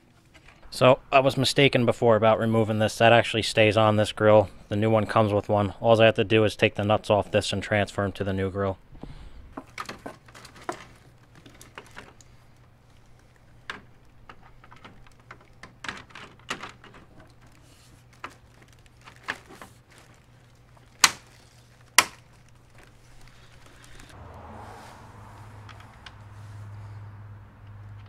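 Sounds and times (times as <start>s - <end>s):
plastic clips snapping: 9.6s - 24.1s.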